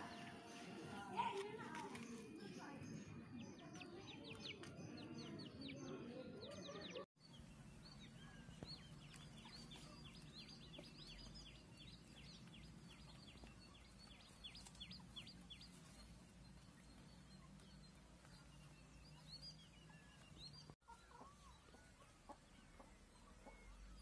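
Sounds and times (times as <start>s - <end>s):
rapid bird chirping: 6.7s - 24.0s
chicken clucking: 19.5s - 24.0s.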